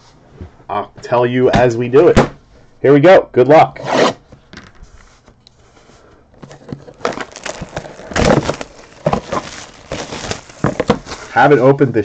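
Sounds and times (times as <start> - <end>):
cardboard box scraping and knocking: 6.4 - 11.3.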